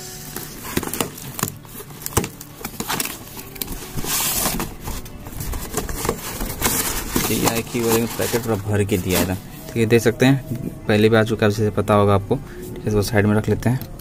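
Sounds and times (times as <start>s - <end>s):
cardboard box flaps rustling: 0.4s - 9.4s.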